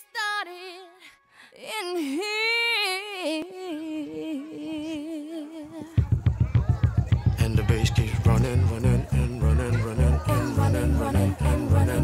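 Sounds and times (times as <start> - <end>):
solo voice singing held notes: 7.5 - 12.0.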